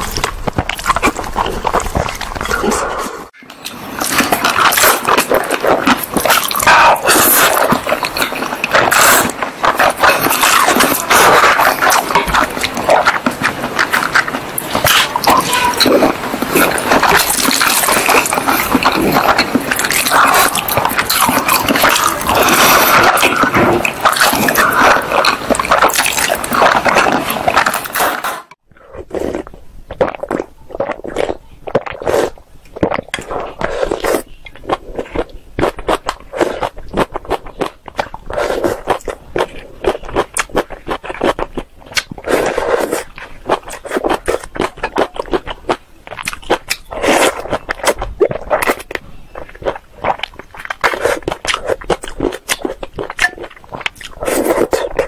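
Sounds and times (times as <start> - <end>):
soup sipping: 0.0 - 40.8
lip smacks: 0.0 - 55.0
noodles chewed and slurped: 0.0 - 55.0.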